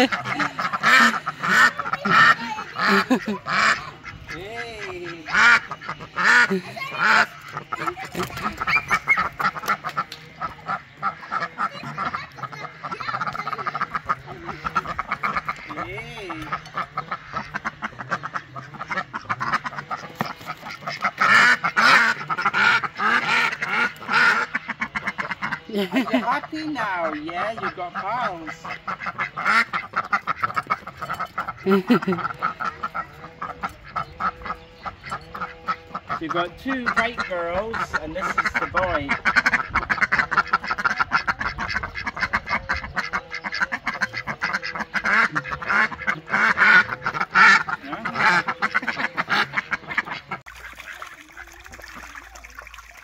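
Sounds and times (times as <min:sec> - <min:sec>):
ducks quacking: 0:00.0 - 0:53.0.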